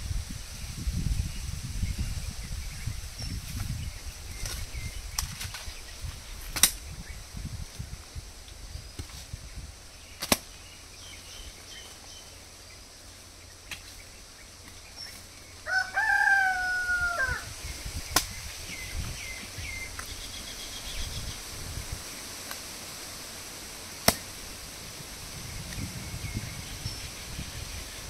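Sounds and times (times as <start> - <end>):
hoe chopping into soil: 6.4 - 6.8, 10.2 - 10.6, 13.6 - 15.3, 18.1 - 20.1, 24.0 - 24.4
rooster crowing: 15.6 - 17.5.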